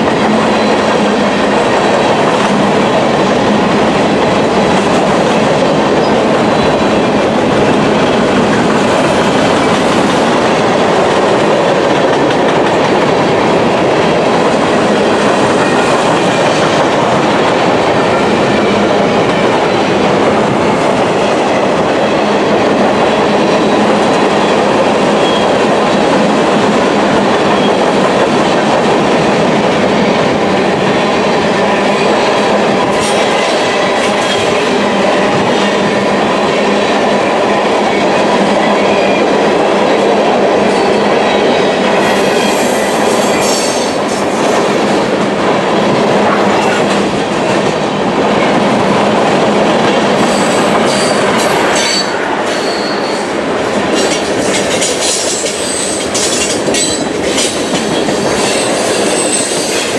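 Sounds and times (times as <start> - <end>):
train wheels rumbling on rail: 0.0 - 59.9
high wheel squeals: 51.8 - 53.3.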